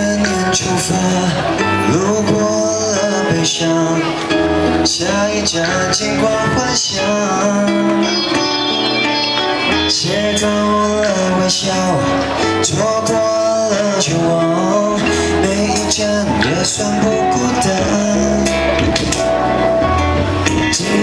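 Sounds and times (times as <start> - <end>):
guitar accompaniment: 0.0 - 21.0
man singing pop ballad: 0.0 - 21.0.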